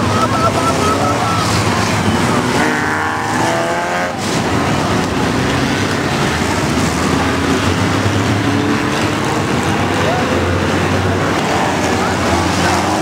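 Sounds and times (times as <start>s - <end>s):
engine note climbing: 0.0s - 5.0s
racing car engines and tyres: 0.0s - 13.0s.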